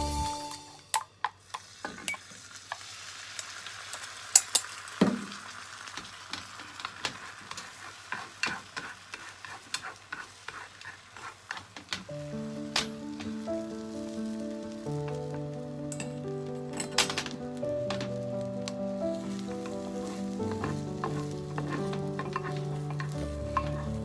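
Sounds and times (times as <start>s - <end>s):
egg sizzling in a pan: 0.9s - 24.0s
chopsticks scraping a pan: 6.8s - 12.0s, 19.1s - 24.0s.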